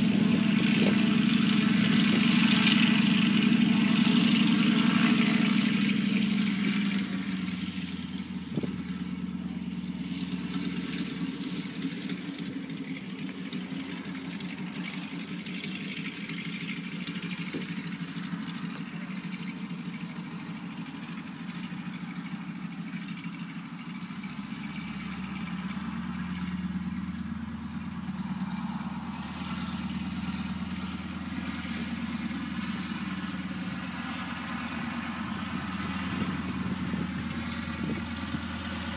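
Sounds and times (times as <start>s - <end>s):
radial aircraft engine droning: 0.0s - 38.9s.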